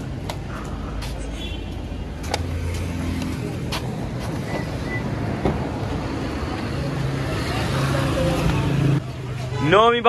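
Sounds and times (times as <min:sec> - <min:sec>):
footsteps on brick paving: 0:00.0 - 0:04.5
low traffic rumble: 0:00.0 - 0:10.0.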